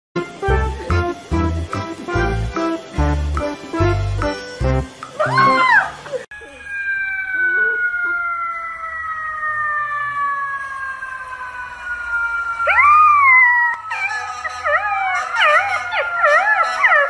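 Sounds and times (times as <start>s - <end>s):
long falling tone: 4.2s - 17.0s
puppy howling: 5.2s - 8.6s, 12.6s - 17.0s.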